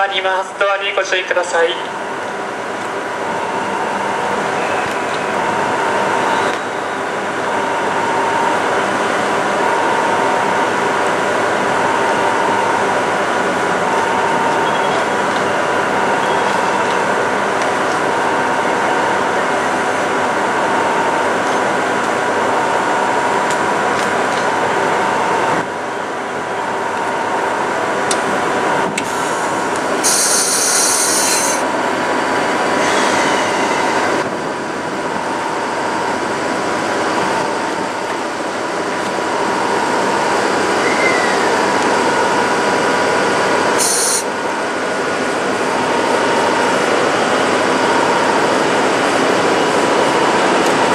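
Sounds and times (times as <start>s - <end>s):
electric locomotive whirring hum: 0.0s - 50.9s
brief high hiss: 30.0s - 31.6s, 43.8s - 44.3s.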